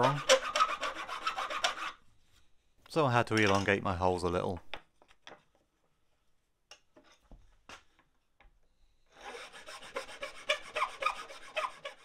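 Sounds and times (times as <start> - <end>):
file rasping: 0.0 - 2.0, 9.1 - 12.0.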